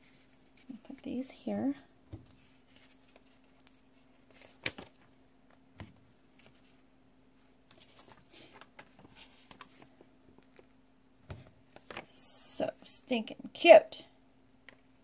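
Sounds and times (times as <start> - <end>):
faint paper rustling: 0.0 - 1.4, 2.1 - 12.2.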